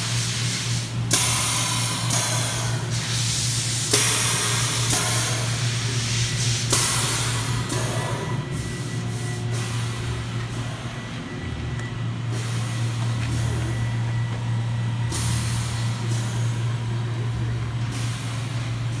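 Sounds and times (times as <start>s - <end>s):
hiss: 0.0s - 10.0s
machine hum with high whine: 0.0s - 19.0s.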